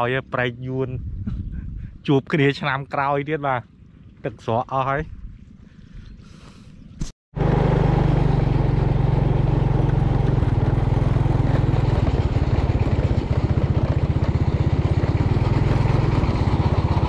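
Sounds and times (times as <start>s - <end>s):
motorcycle engine running: 7.4s - 17.0s.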